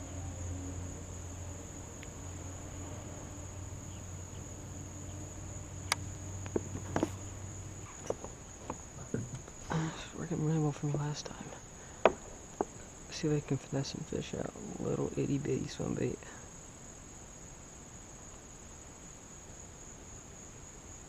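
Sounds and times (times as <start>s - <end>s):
low hum: 0.0s - 16.4s
crickets chirping: 0.0s - 21.0s
light sharp clicks and knocks: 5.8s - 7.2s, 7.8s - 9.6s.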